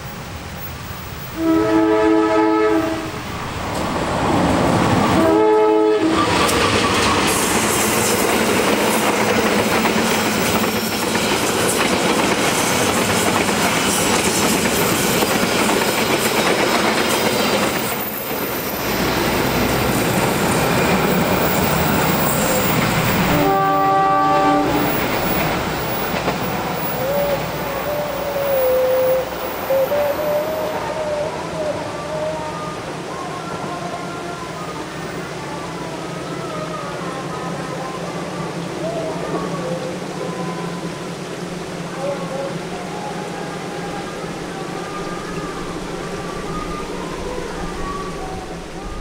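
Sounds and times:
train wheel and rail noise: 0.0s - 49.0s
locomotive horn: 1.3s - 3.2s, 5.0s - 6.5s, 22.5s - 25.0s.

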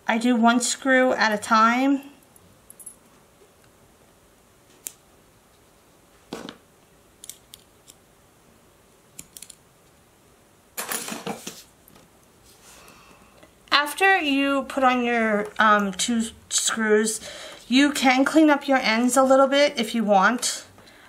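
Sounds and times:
small metal hardware clicking: 9.2s - 9.6s.

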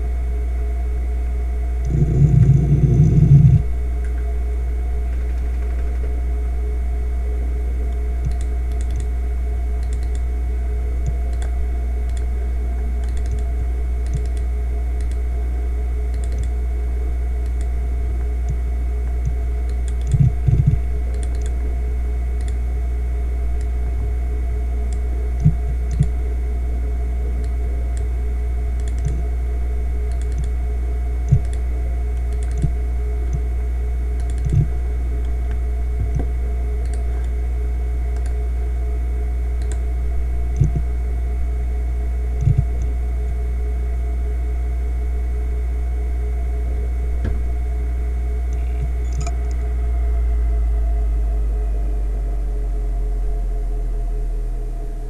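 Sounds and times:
hard drive spinning hum: 0.0s - 55.0s
hard drive seek clicks: 1.8s - 6.7s, 7.8s - 16.7s, 17.4s - 21.7s, 24.8s - 26.4s, 27.2s - 37.5s, 39.5s - 41.0s, 42.4s - 43.4s, 48.4s - 49.8s.

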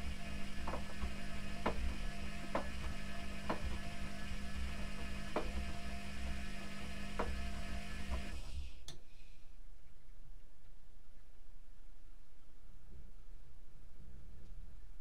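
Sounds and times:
washing machine motor humming: 0.0s - 9.0s.

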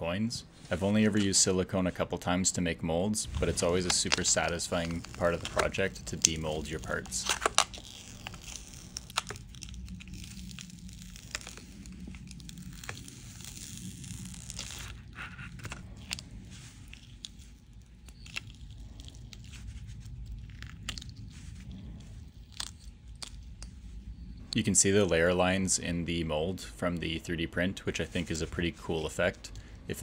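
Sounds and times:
plastic container crinkling: 3.3s - 23.5s
silicone mold peeling: 3.3s - 24.6s.

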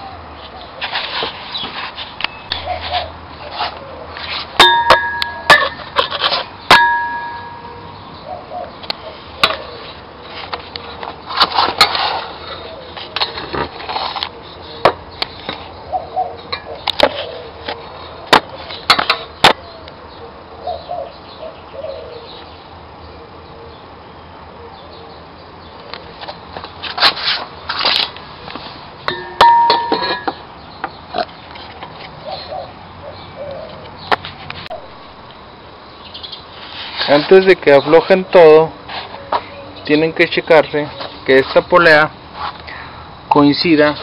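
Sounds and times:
tools and metal parts clinking: 4.6s - 7.8s, 29.1s - 30.4s.

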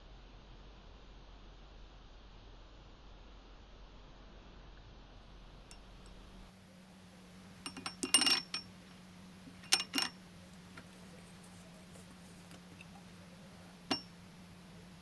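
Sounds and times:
metal tube clinking in ceramic bowl: 7.7s - 8.7s, 9.6s - 10.2s, 13.9s - 14.1s.

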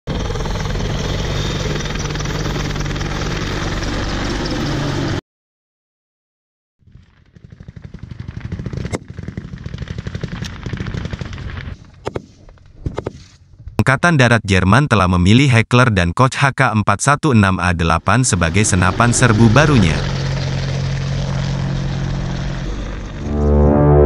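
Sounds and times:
helicopter rotor and turbine noise: 0.1s - 5.2s, 6.9s - 13.7s, 17.6s - 24.0s
sharp cracks: 6.9s - 13.4s
rumble with rapid beating: 6.9s - 13.8s.

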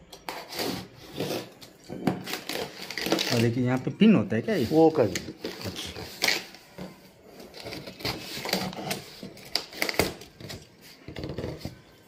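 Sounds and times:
cardboard rustling and scraping: 4.4s - 12.0s.

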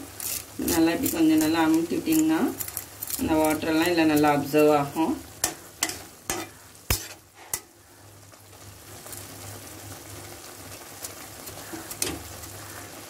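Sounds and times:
simmering pan hissing: 0.0s - 13.0s
spatula knocking and scraping pan: 5.4s - 7.2s.

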